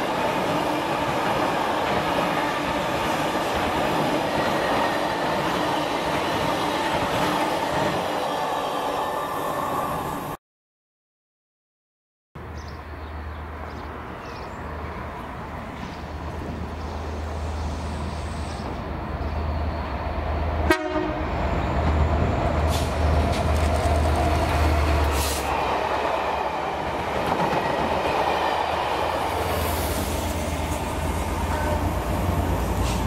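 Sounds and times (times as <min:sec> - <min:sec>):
train wheel and rail noise: 0:00.0 - 0:10.4, 0:13.1 - 0:33.0
diesel locomotive engine rumble: 0:14.8 - 0:33.0.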